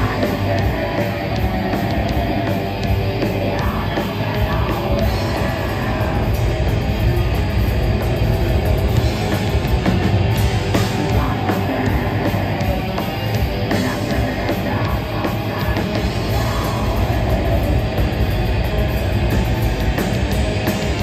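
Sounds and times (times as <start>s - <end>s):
singer's vocals: 0.0s - 6.7s, 10.7s - 18.1s
bass guitar: 0.0s - 21.0s
distorted electric guitars: 0.0s - 21.0s
fast busy drums: 0.0s - 21.0s.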